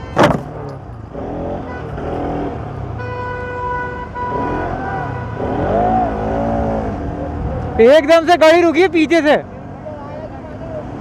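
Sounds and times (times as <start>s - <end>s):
vehicle horn: 0.0s - 0.5s, 1.4s - 6.0s
road traffic: 0.0s - 11.0s.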